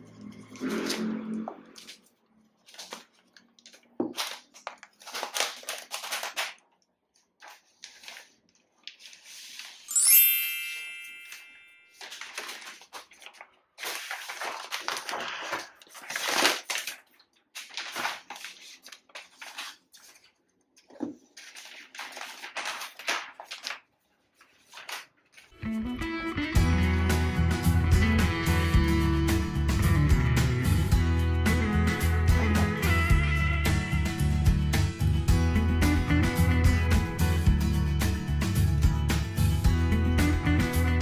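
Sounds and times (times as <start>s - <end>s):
paper and cardboard rustling: 1.7s - 10.0s, 11.7s - 25.5s
bright multi-note chime: 9.9s - 12.0s.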